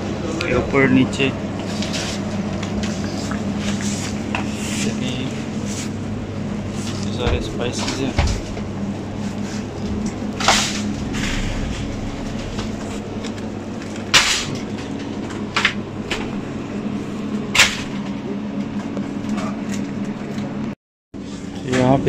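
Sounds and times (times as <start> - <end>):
low machine hum: 0.0 - 17.4.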